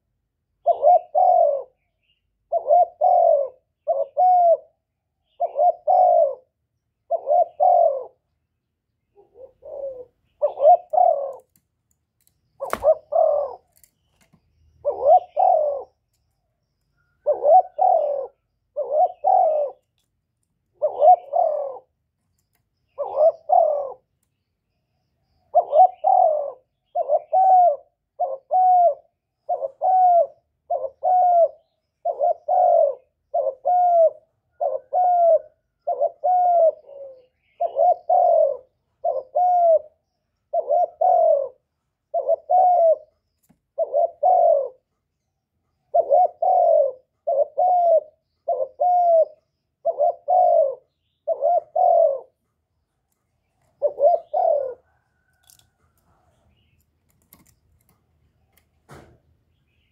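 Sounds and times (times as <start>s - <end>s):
dove cooing: 0.6s - 8.4s, 9.1s - 11.6s, 12.6s - 13.9s, 14.8s - 16.1s, 17.0s - 19.9s, 20.7s - 22.1s, 22.9s - 24.1s, 25.5s - 45.0s, 45.8s - 52.4s, 53.6s - 56.7s.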